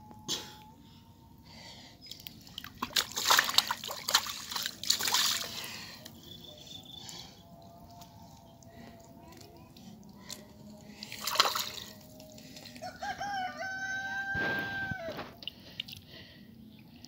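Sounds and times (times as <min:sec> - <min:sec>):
hands splashing in muddy water: 0:02.4 - 0:06.2, 0:11.0 - 0:12.8.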